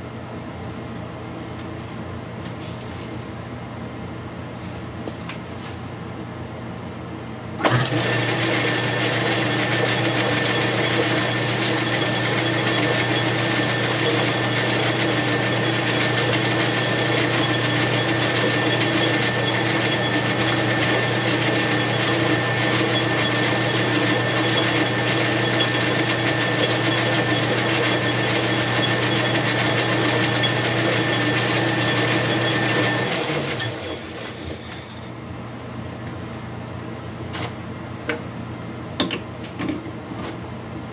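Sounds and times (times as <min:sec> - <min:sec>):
metal lathe motor humming: 0:07.7 - 0:34.1.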